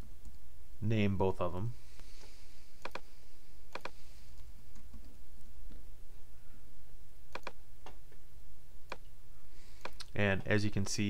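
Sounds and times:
low steady hum: 0.0s - 11.0s
mouse button clicks: 2.8s - 3.1s, 3.7s - 4.0s, 7.3s - 7.6s.

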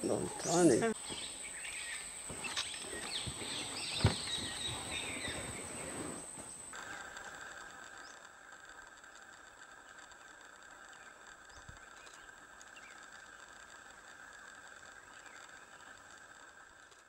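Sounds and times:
bird chirps: 0.0s - 6.6s
light rustling: 2.2s - 6.8s.

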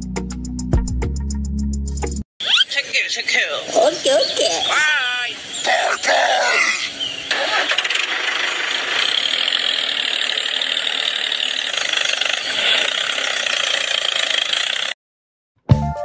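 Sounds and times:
small engine running with rapid pulsing: 7.3s - 15.0s.

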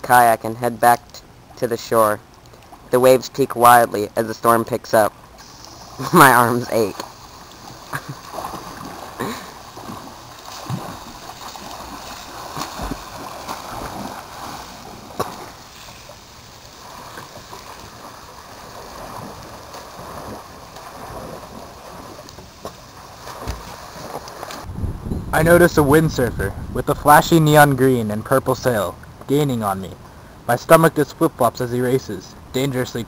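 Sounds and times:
swimmer splashing: 5.2s - 24.7s
hose spraying water: 5.4s - 20.8s.

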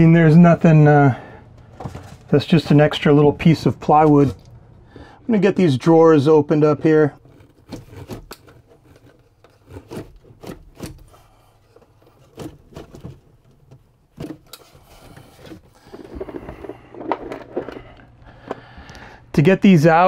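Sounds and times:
drawer rubbing and scraping: 14.2s - 18.0s.

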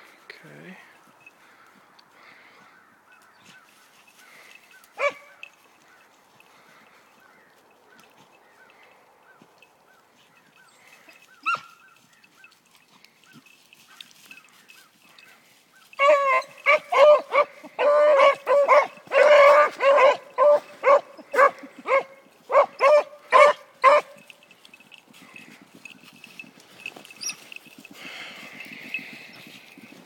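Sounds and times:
dog baying: 15.9s - 25.4s.

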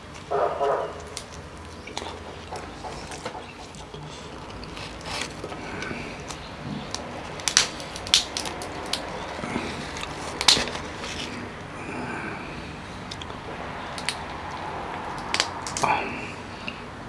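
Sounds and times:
crab shell cracking: 1.0s - 11.5s, 13.0s - 16.0s.

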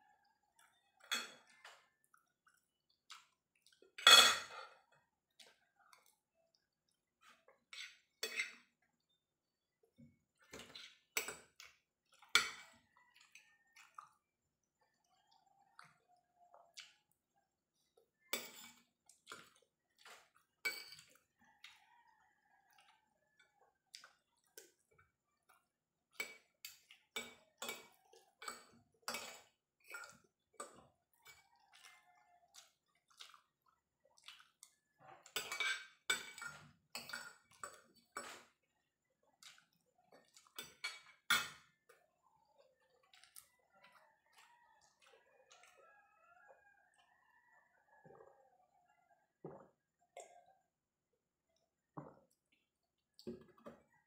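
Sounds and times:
cutlery clinking on ceramic plate: 4.0s - 4.8s, 7.7s - 8.7s, 12.2s - 12.8s, 18.3s - 19.6s, 20.7s - 21.3s, 35.3s - 38.5s, 40.5s - 41.8s.

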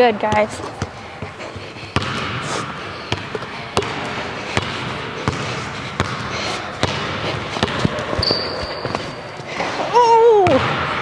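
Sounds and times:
basketball bouncing on hardwood: 0.2s - 1.0s, 2.0s - 2.4s, 3.1s - 4.0s, 4.6s - 8.4s.

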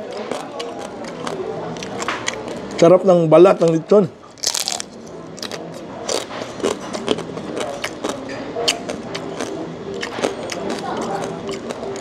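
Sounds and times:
chewing crackles: 0.0s - 2.8s, 3.6s - 12.0s
crunchy bite into crackling: 4.4s - 12.0s.

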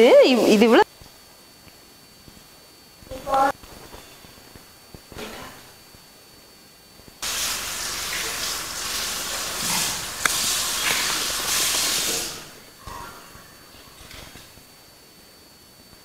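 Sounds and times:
loud even hiss: 7.2s - 12.8s.

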